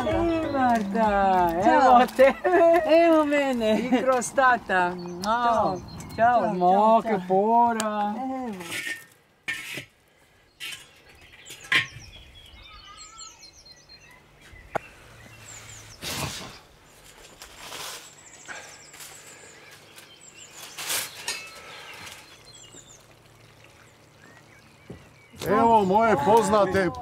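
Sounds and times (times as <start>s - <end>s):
small birds chirping: 0.0s - 8.9s, 10.1s - 27.0s
metal pan knocks and scrapes: 8.6s - 9.9s.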